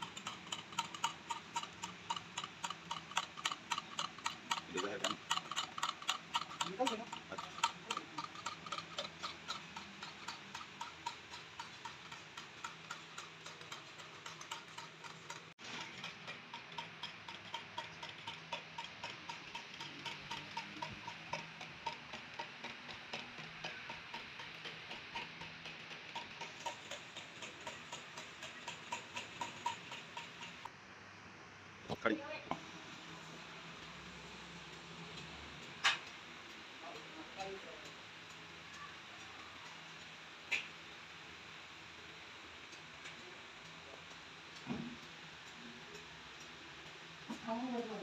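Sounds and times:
rhythmic ticking: 0:00.0 - 0:30.7, 0:33.0 - 0:48.0.

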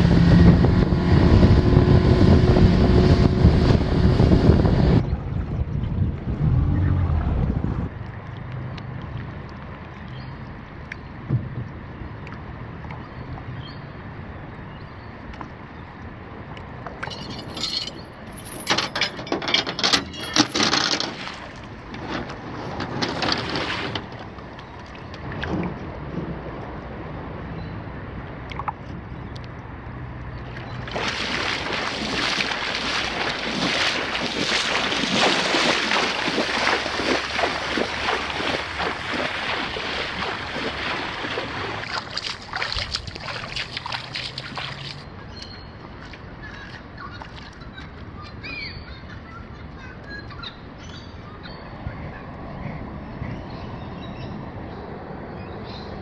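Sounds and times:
knocks and splashes: 0:07.1 - 0:13.6, 0:16.6 - 0:27.0, 0:30.2 - 0:45.1
person wading through water: 0:21.0 - 0:26.1, 0:28.3 - 0:48.2.

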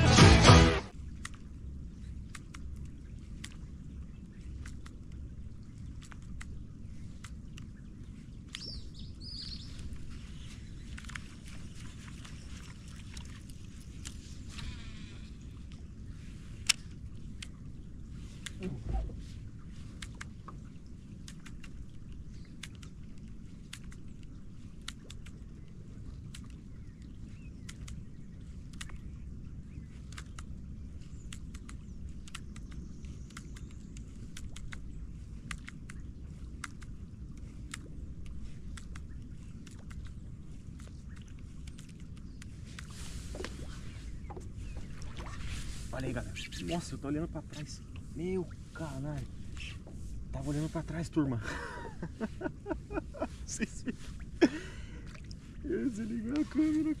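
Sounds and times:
low rumble: 0:00.0 - 0:21.2
steady low rumble: 0:00.0 - 0:57.0
light ticks: 0:01.2 - 0:15.0, 0:16.5 - 0:18.8, 0:19.7 - 0:43.6
bird chirps: 0:08.5 - 0:11.0.

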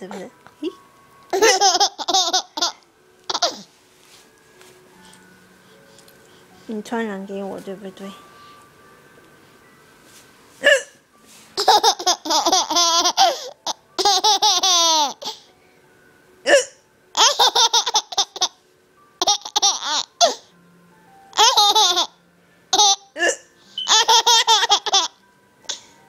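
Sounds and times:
hiccups: 0:10.6 - 0:11.0, 0:16.4 - 0:16.8, 0:23.2 - 0:24.0.

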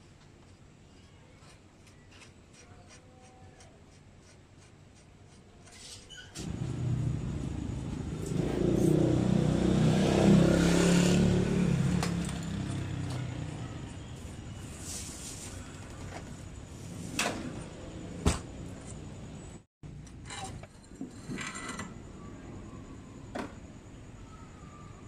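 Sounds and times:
vehicle engine passing: 0:06.4 - 0:14.4.

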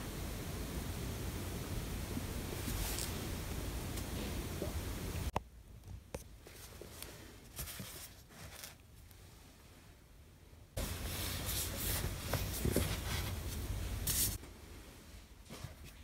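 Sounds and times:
hand brushing along book spines: 0:02.5 - 0:03.3, 0:06.4 - 0:09.4, 0:10.8 - 0:14.4.

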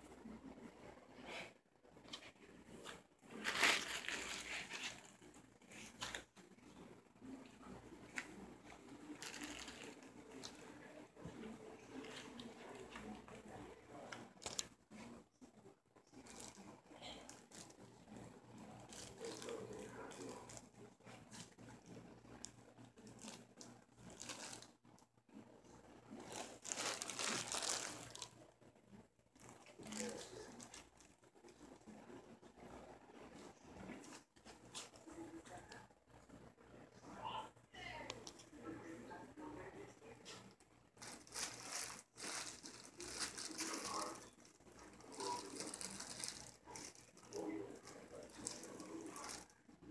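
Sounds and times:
fabric rustling: 0:01.3 - 0:15.2, 0:23.0 - 0:24.8, 0:26.0 - 0:28.4, 0:40.3 - 0:49.9
scratches: 0:02.1 - 0:24.8
blanket fabric rustling: 0:02.7 - 0:06.2, 0:41.0 - 0:49.4.

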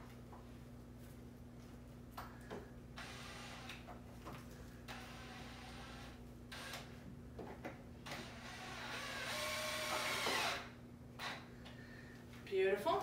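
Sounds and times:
cordless drill motor whirring: 0:08.0 - 0:11.3.

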